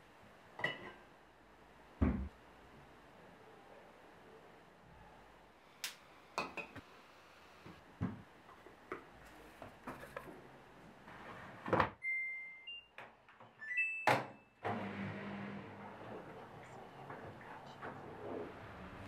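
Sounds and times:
washing machine humming: 14.6s - 19.0s.

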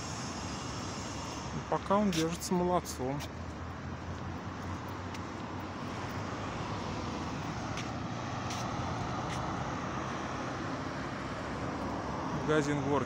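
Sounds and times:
road traffic hum: 0.0s - 13.0s.

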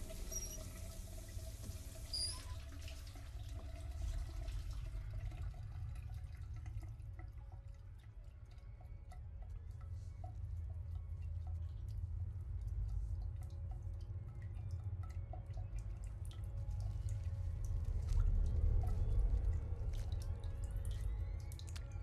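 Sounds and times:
shower water running: 0.0s - 5.0s
water drips on tiles: 12.6s - 22.0s
low rumble: 16.3s - 22.0s.

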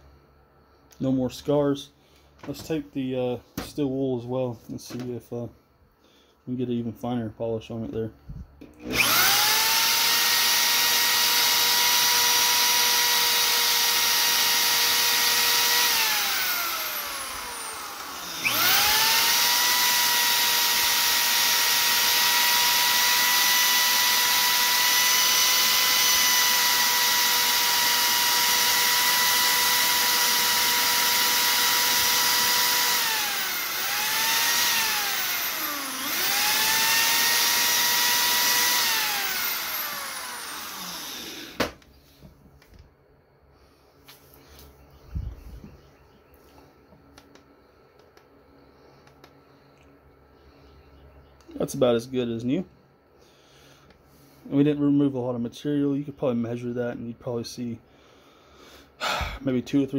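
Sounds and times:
electric drill motor whine: 8.6s - 41.9s.

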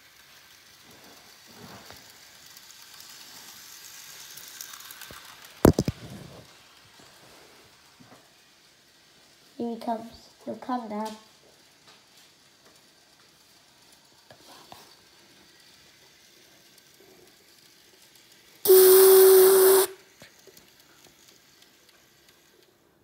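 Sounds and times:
steam whistle over hiss: 18.6s - 20.0s.

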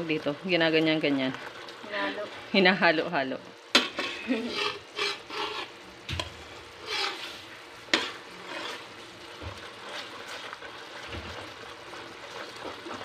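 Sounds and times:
coconut milk bubbling and sizzling: 0.0s - 13.0s
metal spoon scraping pan: 3.7s - 13.0s.

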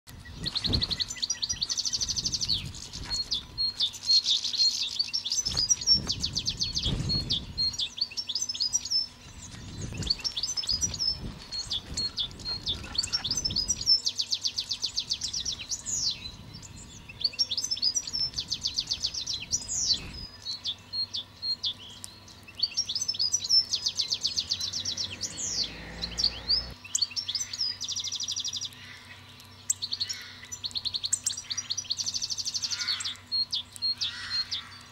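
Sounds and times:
songbirds singing and chirping: 0.1s - 34.9s
low rumbles: 24.4s - 26.8s.

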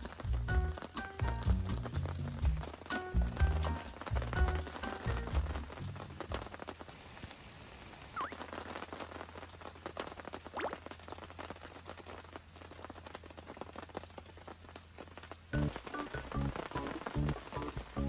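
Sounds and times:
rain pattering: 0.0s - 18.0s.

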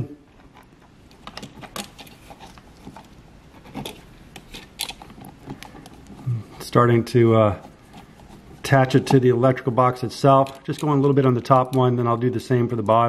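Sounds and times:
screwdriver clicking and scraping: 0.4s - 6.2s, 7.6s - 9.3s, 10.2s - 11.9s.

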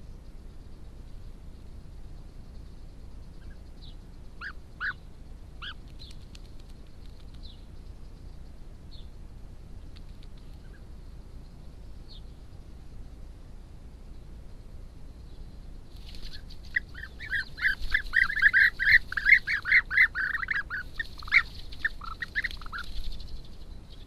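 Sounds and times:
steady low hum: 0.0s - 24.0s
birds giving short calls: 4.4s - 6.2s, 16.1s - 24.0s
faint clicks: 5.8s - 8.0s, 9.8s - 10.7s.

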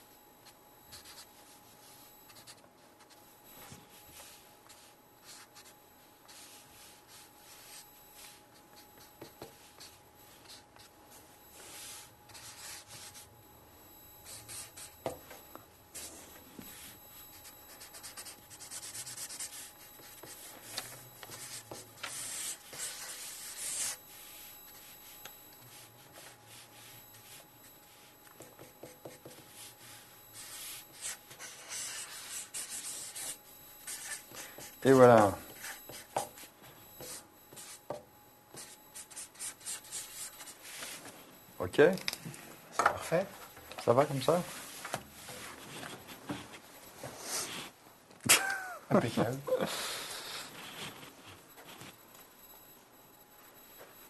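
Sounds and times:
marker scratching on paper: 21.2s - 24.5s, 28.6s - 34.7s, 38.6s - 40.9s.

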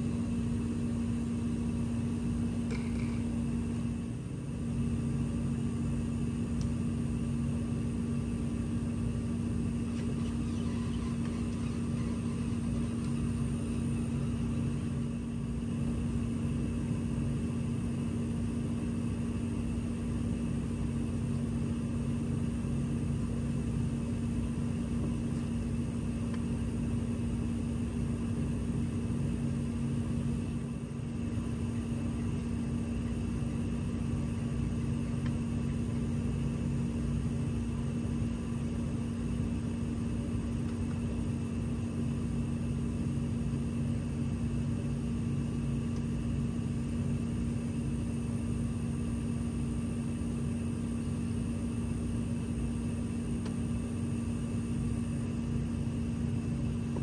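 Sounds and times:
motor humming: 0.0s - 57.0s.

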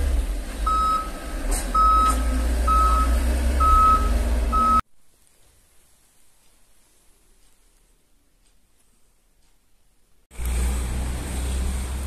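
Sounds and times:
low engine rumble: 0.0s - 4.8s, 10.3s - 12.0s
reversing alarm beeping: 0.7s - 4.8s.

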